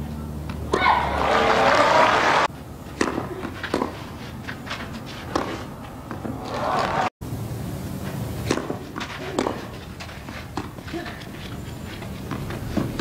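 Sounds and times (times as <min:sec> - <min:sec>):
crowd noise: 0:00.0 - 0:02.5, 0:06.2 - 0:07.1
tennis ball strokes: 0:02.8 - 0:07.0, 0:08.1 - 0:13.0.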